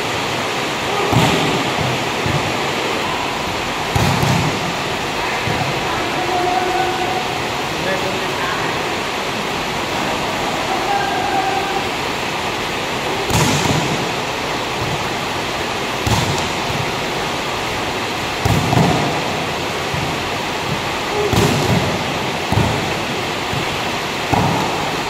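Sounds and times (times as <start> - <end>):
steady rushing noise: 0.0 - 25.0
volleyball spike smacks: 3.9 - 4.6, 13.3 - 14.0, 16.0 - 16.8.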